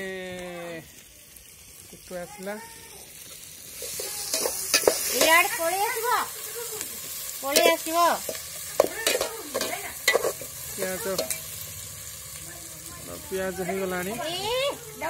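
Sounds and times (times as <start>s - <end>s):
onions sizzling in oil: 0.0s - 15.0s
metal spoon scraping metal pot: 9.0s - 10.5s.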